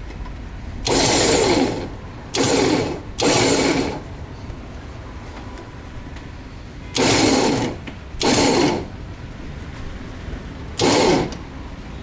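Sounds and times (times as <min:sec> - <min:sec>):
electric winch motor: 0:00.8 - 0:04.1, 0:06.9 - 0:09.0, 0:10.8 - 0:11.4.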